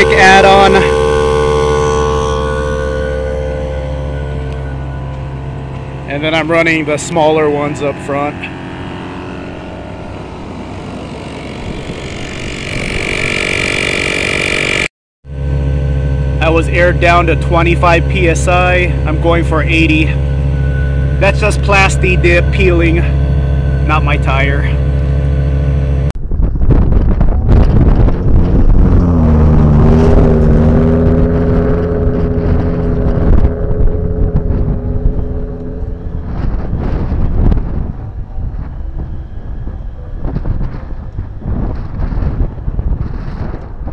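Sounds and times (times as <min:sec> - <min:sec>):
electric tire inflator running: 0:00.0 - 0:06.1, 0:07.0 - 0:16.5
vehicle engine driving: 0:00.0 - 0:26.2, 0:27.0 - 0:43.9
high whine: 0:00.0 - 0:43.9
wind: 0:00.0 - 0:43.9.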